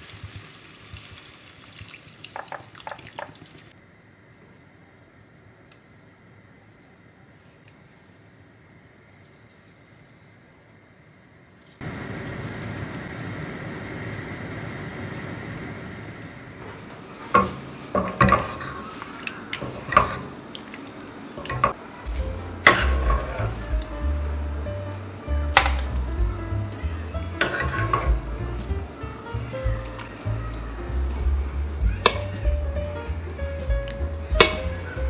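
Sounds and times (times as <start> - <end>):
soup simmering hiss: 0.0 - 35.0
spoon stirring in a metal pot: 17.3 - 20.3, 27.4 - 28.2.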